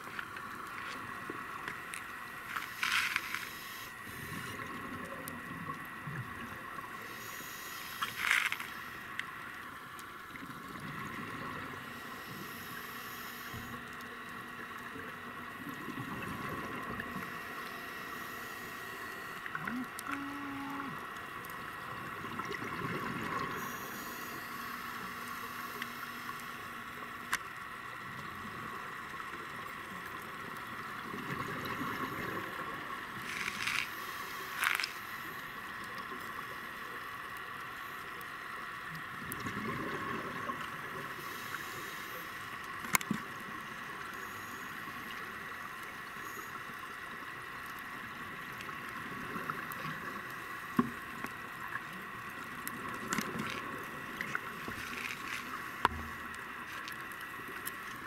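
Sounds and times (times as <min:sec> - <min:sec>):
steady hiss: 0:00.0 - 0:39.2, 0:40.0 - 0:58.0
diver regulator breathing: 0:02.4 - 0:04.8, 0:07.0 - 0:09.3, 0:11.8 - 0:14.3, 0:17.1 - 0:21.1, 0:23.3 - 0:26.9, 0:33.2 - 0:35.6, 0:41.1 - 0:42.6
exhaled bubbles underwater: 0:10.3 - 0:12.4, 0:13.7 - 0:17.8, 0:19.2 - 0:26.4, 0:28.3 - 0:33.2, 0:39.2 - 0:41.2.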